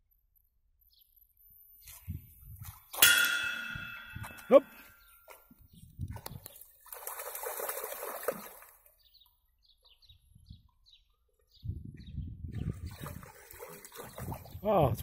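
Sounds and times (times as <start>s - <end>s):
dog splashing through water: 6.1s - 8.9s, 12.7s - 14.6s.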